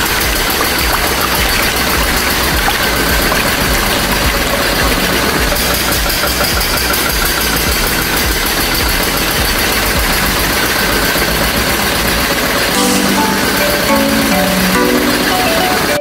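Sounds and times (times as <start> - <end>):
small electric motor ticking: 0.0 - 12.7.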